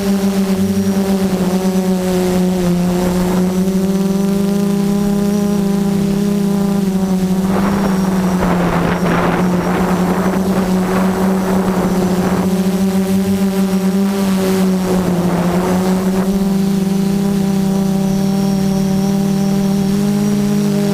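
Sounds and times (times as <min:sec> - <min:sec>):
drone motors whining: 0:00.0 - 0:20.9
rushing air: 0:04.5 - 0:17.5.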